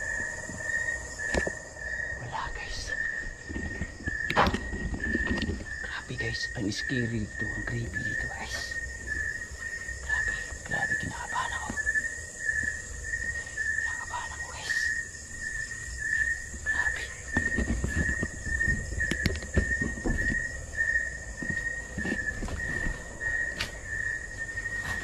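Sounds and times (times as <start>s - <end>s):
high insect trill: 0.0s - 25.0s
insects chirping: 0.0s - 25.0s
knocks on wooden floor: 17.4s - 20.5s.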